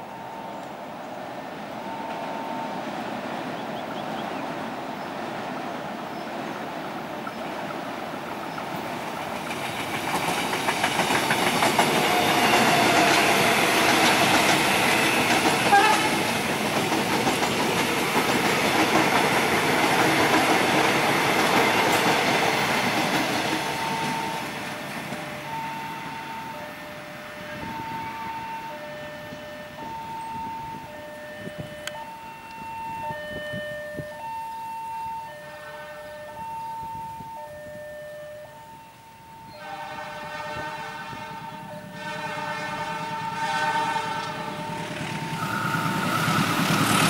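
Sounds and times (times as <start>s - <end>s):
two-tone level crossing alarm: 1.6s - 3.0s, 11.4s - 16.2s, 23.4s - 47.0s
train wheels clattering on rails: 1.9s - 26.4s, 40.4s - 47.0s.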